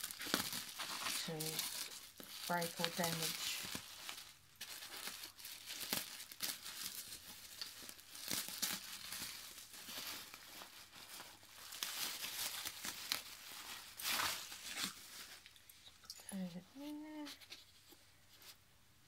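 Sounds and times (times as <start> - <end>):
scissors cutting plastic: 0.0 - 3.9
plastic wrapping crinkling: 0.0 - 18.6.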